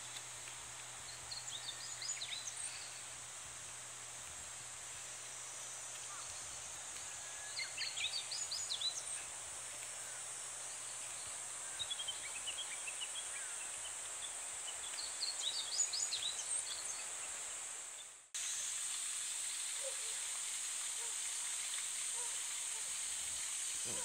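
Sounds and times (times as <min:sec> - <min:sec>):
cicadas droning: 0:00.0 - 0:24.0.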